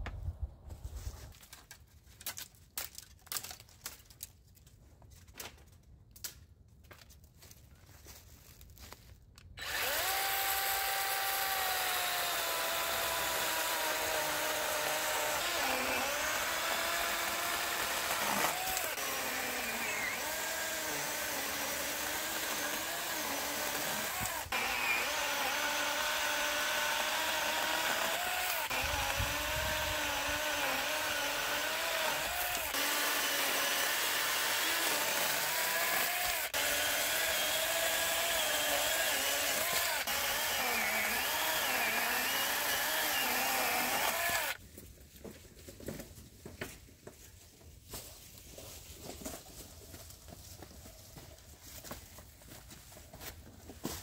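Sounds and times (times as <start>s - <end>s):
power tool motor running: 9.6s - 44.6s.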